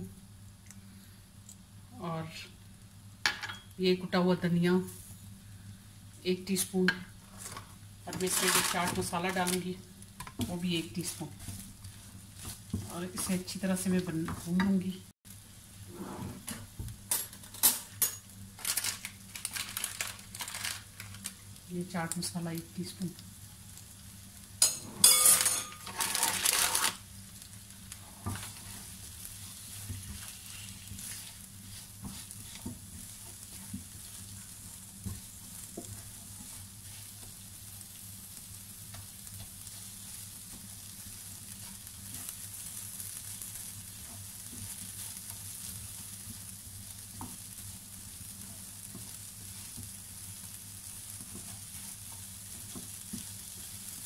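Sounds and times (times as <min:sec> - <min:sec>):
potatoes sizzling in oil: 0:01.6 - 0:54.0
spatula scraping and tapping: 0:11.2 - 0:13.4, 0:27.9 - 0:37.4, 0:38.8 - 0:40.7, 0:48.4 - 0:50.0, 0:51.1 - 0:53.7.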